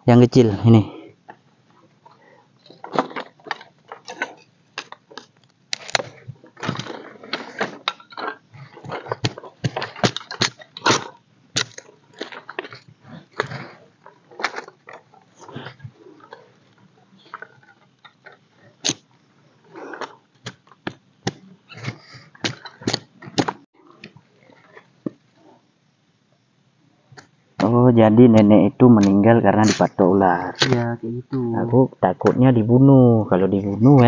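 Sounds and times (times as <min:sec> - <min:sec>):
sticks rustling: 0:01.3 - 0:19.1
dry sticks snapping: 0:03.0 - 0:06.1.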